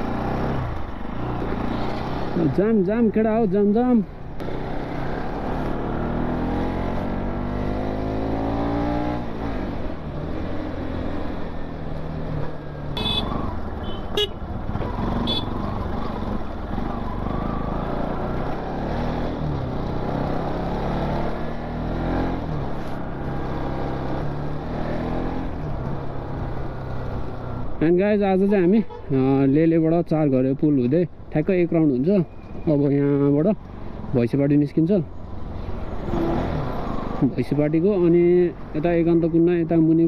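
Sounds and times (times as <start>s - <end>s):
motorcycle engine accelerating: 4.4s - 27.6s
short horn beeps: 13.0s - 14.4s.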